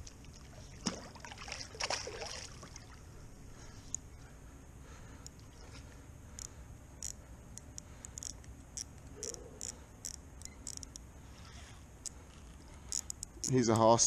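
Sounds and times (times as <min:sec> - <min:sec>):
low steady hiss: 0:00.0 - 0:14.0
fishing reel ticking: 0:06.3 - 0:11.0, 0:12.0 - 0:14.0.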